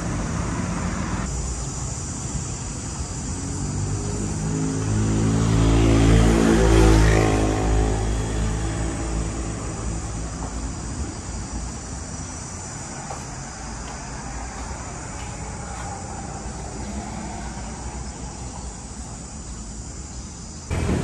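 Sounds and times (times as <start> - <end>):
vehicle engine passing: 3.4 - 10.4, 20.7 - 21.0.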